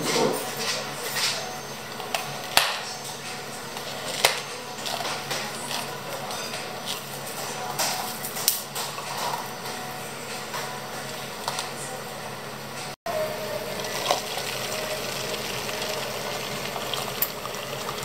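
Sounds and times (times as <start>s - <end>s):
milk pouring: 13.7s - 18.0s.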